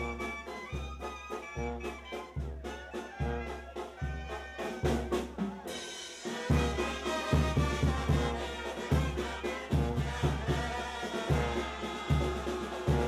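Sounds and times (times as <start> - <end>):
brass band playing: 0.0 - 13.0
cymbals crashing: 5.7 - 6.8.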